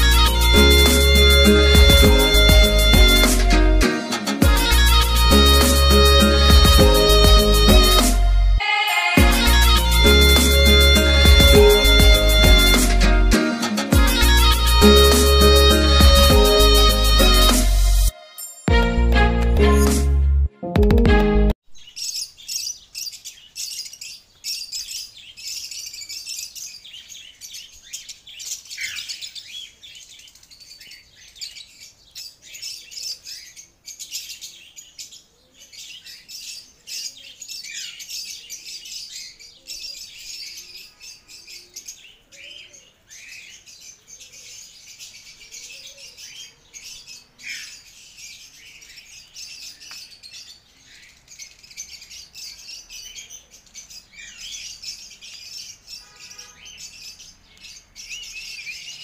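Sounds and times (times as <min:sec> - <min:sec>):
cage birds chirping: 0:00.0 - 0:18.1, 0:21.7 - 0:59.0.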